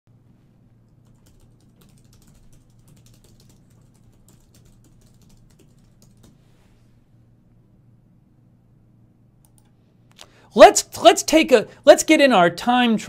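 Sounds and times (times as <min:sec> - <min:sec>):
low steady hum: 0:00.1 - 0:13.0
typing on computer keyboard: 0:01.0 - 0:06.4.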